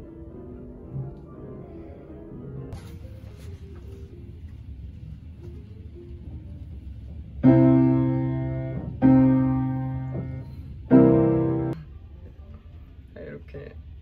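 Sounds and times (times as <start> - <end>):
piano chords ringing: 0.0 - 3.2, 7.4 - 11.9.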